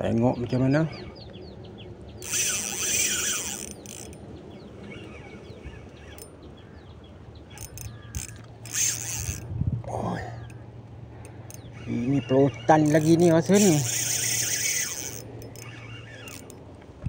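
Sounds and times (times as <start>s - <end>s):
birds chirping: 0.0s - 17.0s
fishing reel: 2.2s - 4.2s, 7.5s - 9.5s, 11.2s - 16.6s
sharp clicks: 7.5s - 9.5s.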